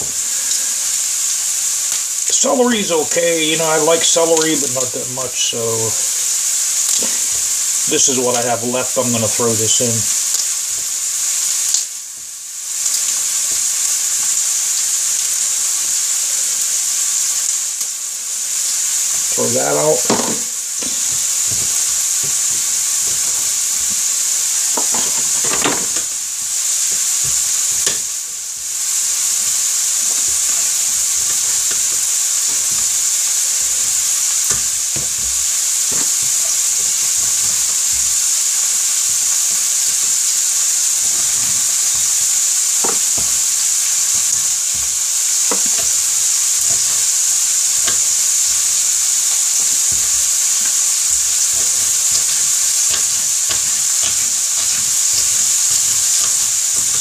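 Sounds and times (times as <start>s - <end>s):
food sizzling in a pan: 0.0s - 57.0s
knife tapping on wooden board: 20.0s - 21.7s, 24.8s - 26.1s.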